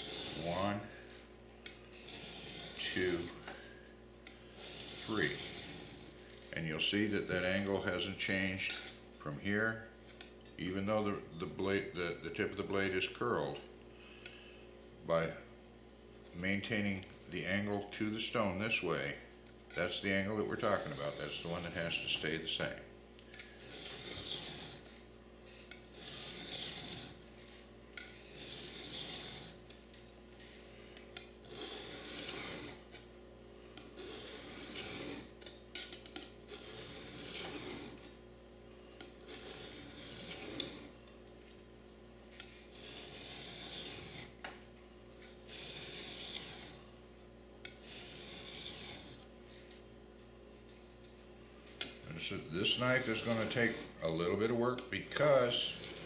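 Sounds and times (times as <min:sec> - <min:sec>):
knife scraping sharpening stone: 0:00.0 - 0:00.6, 0:02.0 - 0:03.3, 0:04.5 - 0:06.1, 0:23.4 - 0:25.0, 0:25.6 - 0:27.3, 0:28.0 - 0:29.7, 0:31.2 - 0:33.1, 0:33.8 - 0:38.1, 0:39.0 - 0:40.9, 0:42.4 - 0:44.4, 0:45.5 - 0:46.8, 0:47.6 - 0:49.2, 0:52.6 - 0:54.0, 0:55.1 - 0:56.0.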